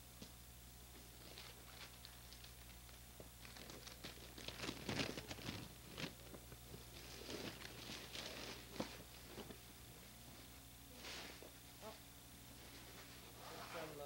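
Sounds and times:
tissue paper and plastic rustling: 0:01.2 - 0:09.6.

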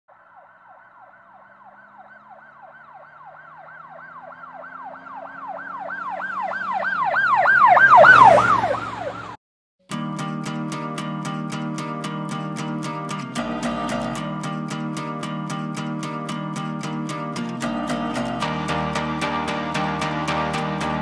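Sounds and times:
road noise rushing: 0:00.1 - 0:09.4, 0:17.6 - 0:21.0
siren yelping: 0:00.1 - 0:09.4
strummed guitar music: 0:09.9 - 0:21.0.

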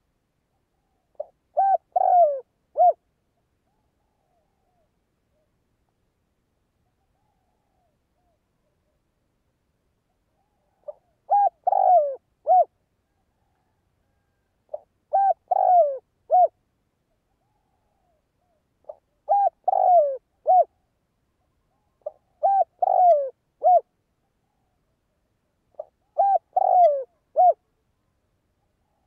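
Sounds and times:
dove cooing: 0:01.1 - 0:03.0, 0:10.4 - 0:16.6, 0:17.4 - 0:20.8, 0:21.8 - 0:23.9, 0:25.7 - 0:27.6.

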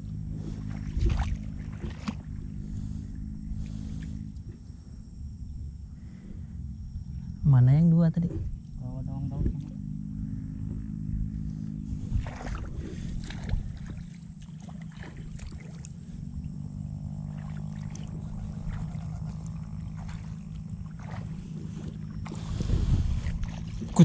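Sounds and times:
footsteps wading through water: 0:00.0 - 0:04.7, 0:11.6 - 0:24.0
low rumble: 0:00.0 - 0:24.0.

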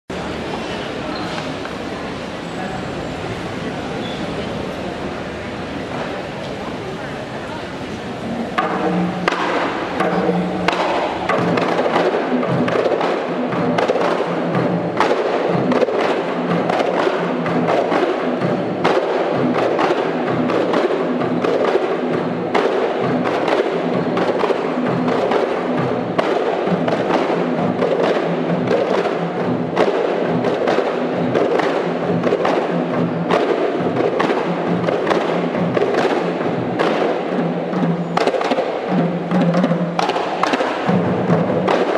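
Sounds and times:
hand drums in fast rhythm: 0:08.4 - 0:41.9.

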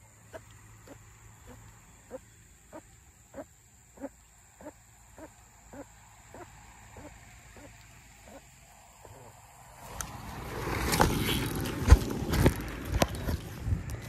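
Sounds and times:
animal calling: 0:00.0 - 0:09.4
steady background hum: 0:00.0 - 0:14.0.

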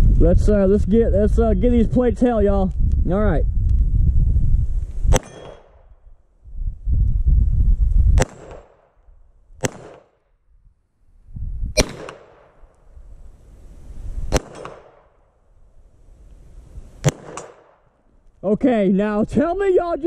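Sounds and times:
pistol shots: 0:05.1 - 0:05.9, 0:08.2 - 0:09.0, 0:09.6 - 0:10.2, 0:11.8 - 0:12.7, 0:14.3 - 0:15.2, 0:17.0 - 0:17.9.

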